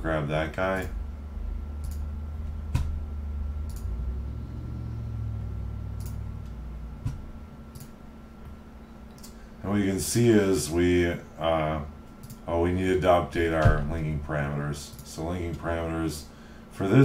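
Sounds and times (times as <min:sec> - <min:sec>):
steady low hum: 0:00.0 - 0:17.0
computer mouse clicking: 0:01.8 - 0:02.1, 0:03.6 - 0:03.9, 0:06.0 - 0:06.2, 0:07.7 - 0:08.0, 0:12.2 - 0:12.4.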